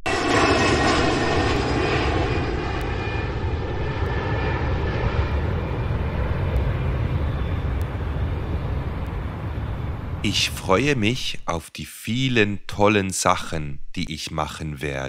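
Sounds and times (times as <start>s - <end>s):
jet engine roar with whine: 0.0s - 11.5s.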